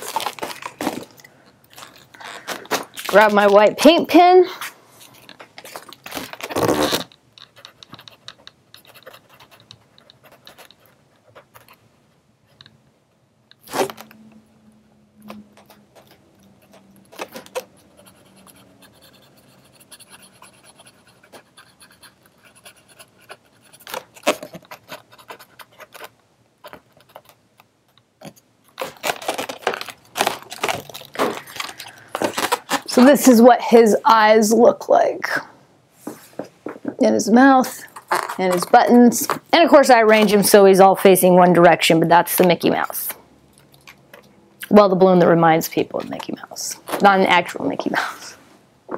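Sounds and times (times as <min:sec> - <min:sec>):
scraping and rubbing on balloon: 0:05.6 - 0:11.8, 0:37.6 - 0:40.4.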